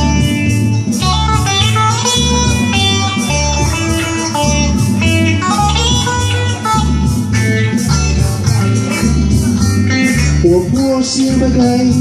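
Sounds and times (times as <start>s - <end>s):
electric guitar playing: 0.0s - 12.0s
repeating bass line: 0.0s - 12.0s.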